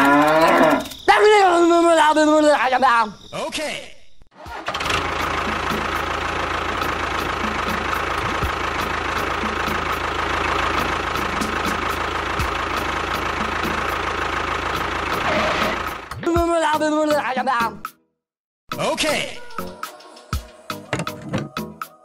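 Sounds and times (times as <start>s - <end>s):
tractor engine idling: 4.4s - 16.2s.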